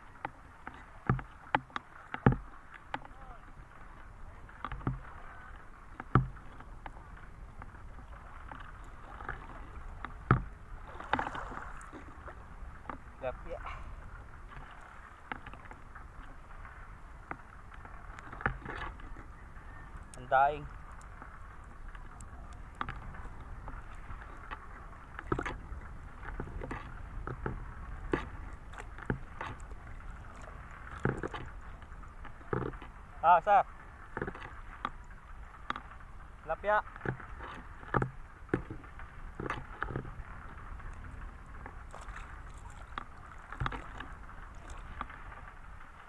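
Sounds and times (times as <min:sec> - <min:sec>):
water sloshing and splashing: 0:00.0 - 0:46.0.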